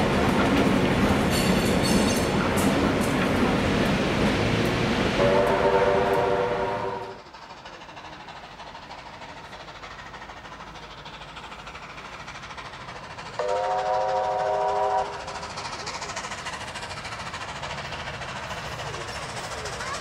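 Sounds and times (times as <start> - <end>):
steady rushing train: 0.0 - 20.0
steam locomotive chime whistle: 5.2 - 7.2, 13.4 - 15.3.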